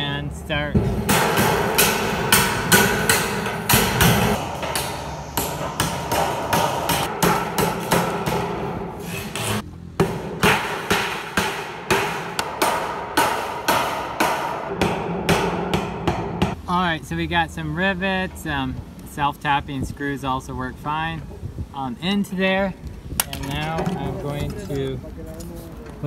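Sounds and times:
hammer tapping sheet metal: 0.8s - 16.6s.

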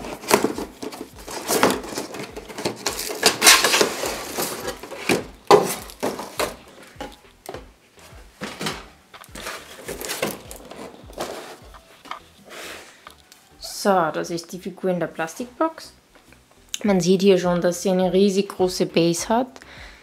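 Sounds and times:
cardboard scraping and rustling: 0.0s - 7.0s, 8.0s - 13.0s
plastic crinkling: 0.0s - 7.0s, 8.4s - 13.4s.

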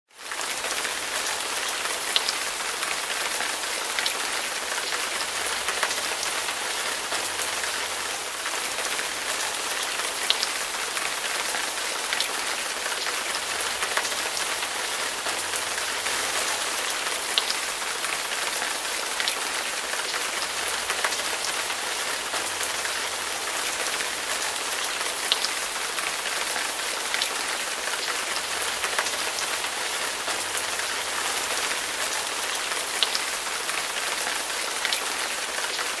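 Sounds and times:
steady rainfall: 0.1s - 36.0s.

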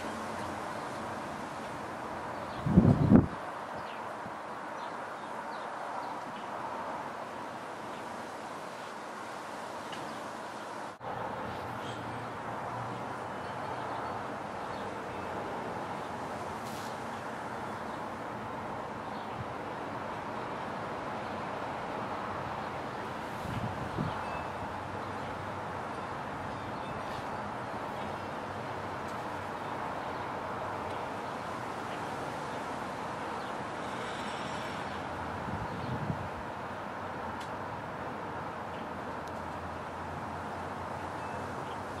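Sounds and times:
outdoor background noise: 0.0s - 42.0s
traffic hum: 0.0s - 42.0s
brief hiss: 16.6s - 17.1s.

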